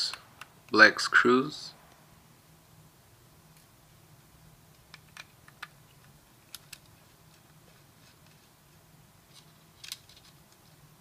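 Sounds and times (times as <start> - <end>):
small metal parts clicking: 9.3 - 10.4.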